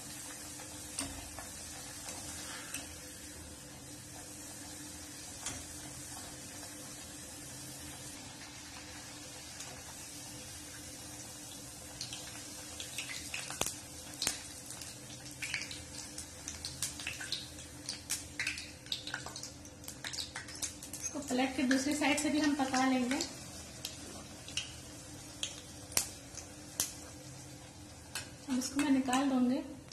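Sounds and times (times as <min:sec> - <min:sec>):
hot oil sizzling: 0:00.0 - 0:29.9
crackling pops: 0:13.0 - 0:14.4, 0:25.4 - 0:27.1.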